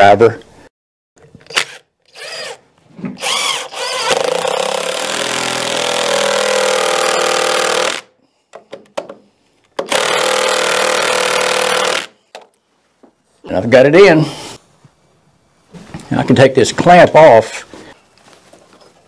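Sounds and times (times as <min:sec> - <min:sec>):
impact driver driving screw: 0:03.2 - 0:08.1, 0:09.8 - 0:12.1.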